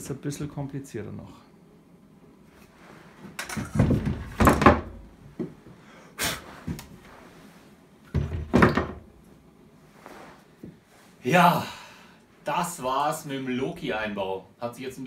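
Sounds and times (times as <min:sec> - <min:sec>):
axes knocking against wall: 0:03.4 - 0:05.6, 0:08.1 - 0:09.1.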